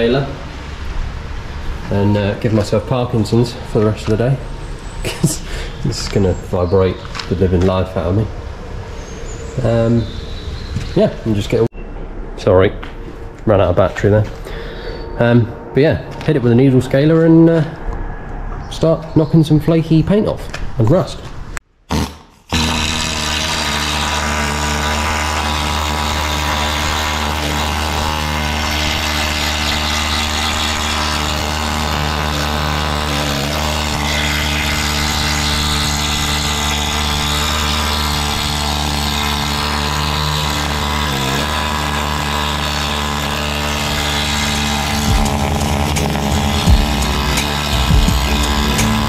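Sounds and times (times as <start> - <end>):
needle scaler hammering on steel: 24.6 - 49.0.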